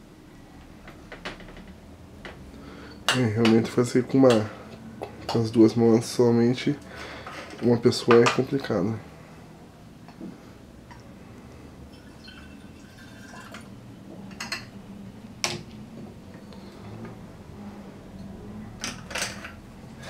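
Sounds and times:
faint liquid pouring: 0:11.9 - 0:13.8.

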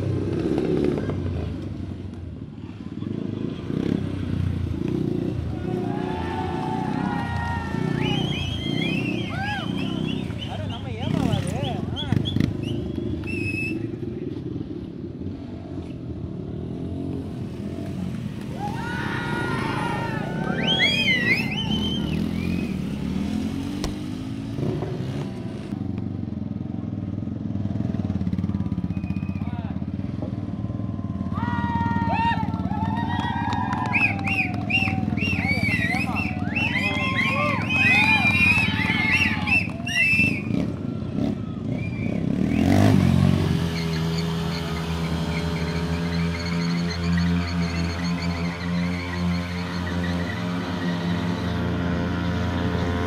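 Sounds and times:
motorcycle engine revving: 0:00.0 - 0:02.0, 0:03.0 - 0:31.3, 0:33.9 - 0:53.0
rear tyre spinning: 0:31.6 - 0:53.0.

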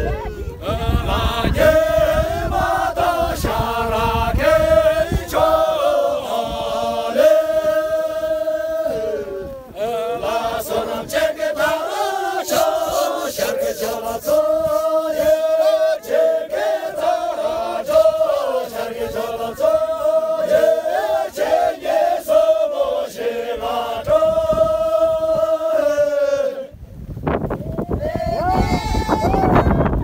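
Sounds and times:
group singing in unison: 0:00.0 - 0:26.8.

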